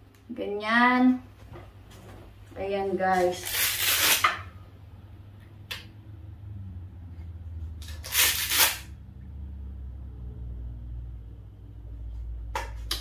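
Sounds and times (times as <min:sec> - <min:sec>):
steady low hum: 0:04.3 - 0:08.0, 0:08.8 - 0:12.9.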